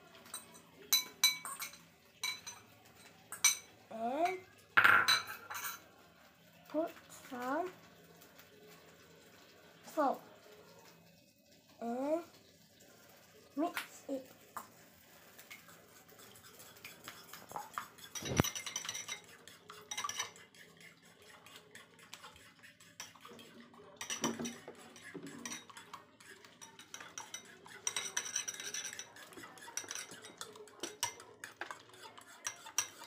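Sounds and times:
metal utensil clinking in ceramic bowl: 0.2 - 5.8, 17.1 - 20.4, 23.0 - 33.0.

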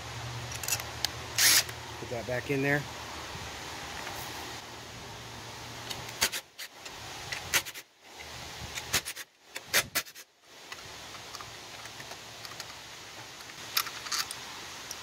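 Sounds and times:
steady hiss: 0.0 - 15.0
metallic clicks of screws: 0.5 - 1.8, 5.9 - 12.8, 13.4 - 15.0.

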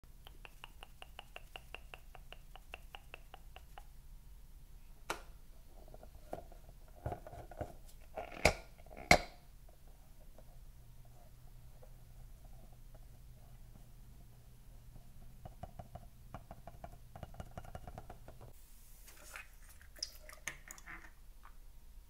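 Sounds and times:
fingers tapping on balloons: 0.2 - 3.9, 15.4 - 18.5.

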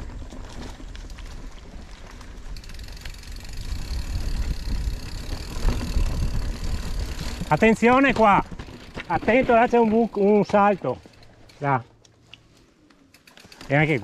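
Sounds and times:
wind rumbling on microphone: 0.0 - 9.2
bike tyre noise on stony trail: 0.0 - 14.0.

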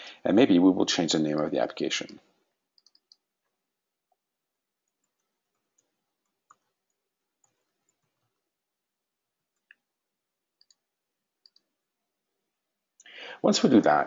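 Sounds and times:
keyboard and mouse clicks: 2.0 - 3.5, 4.8 - 8.4, 10.6 - 11.7.

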